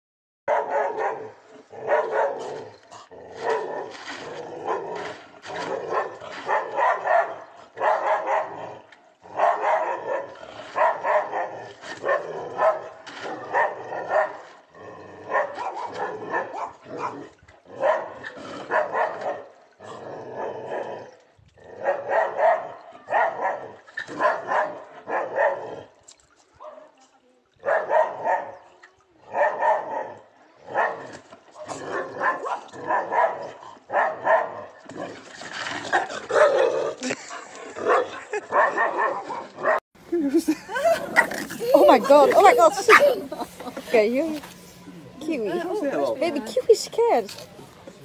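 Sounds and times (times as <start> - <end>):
dog barking: 0.5 - 2.5, 5.6 - 8.6, 9.3 - 12.9, 13.5 - 14.4, 15.3 - 17.2, 17.8 - 19.5, 21.8 - 25.6, 26.6 - 27.0, 27.6 - 28.6, 29.3 - 30.1, 30.7 - 34.6, 36.3 - 36.6, 37.8 - 39.8.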